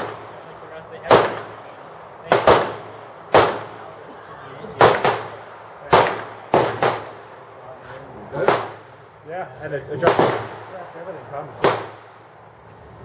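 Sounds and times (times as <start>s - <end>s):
gunshots with echo: 0.0s - 0.4s, 1.0s - 3.9s, 4.8s - 7.3s, 8.4s - 8.9s, 10.0s - 10.8s, 11.5s - 12.2s.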